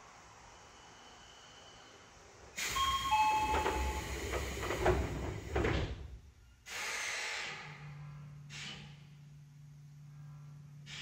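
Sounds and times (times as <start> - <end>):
hiss of air from doors: 0.0 - 9.3, 10.8 - 11.0
two-tone door chime: 2.7 - 4.5
train doors thudding shut: 2.7 - 6.2
low steady hum: 7.7 - 10.9.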